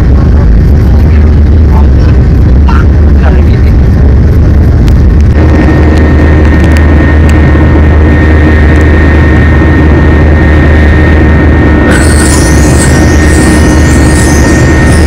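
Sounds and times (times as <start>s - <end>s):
jet engine cabin drone: 0.0s - 15.0s
thin high tone: 11.8s - 15.0s.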